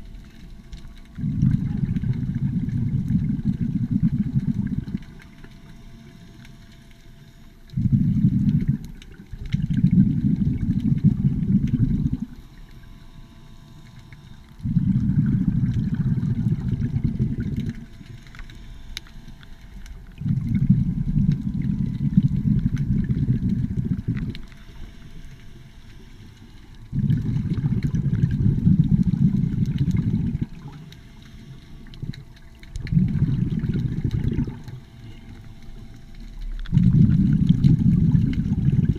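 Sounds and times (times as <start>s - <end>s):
faint motor whine: 0.0s - 38.9s
diver exhaling bubbles: 1.1s - 5.3s, 7.7s - 12.4s, 14.6s - 18.1s, 20.0s - 24.5s, 26.8s - 30.9s, 31.8s - 38.9s.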